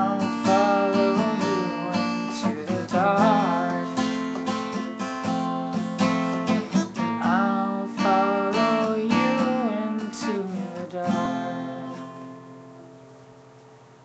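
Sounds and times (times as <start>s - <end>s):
acoustic guitar strummed: 0.0s - 14.0s.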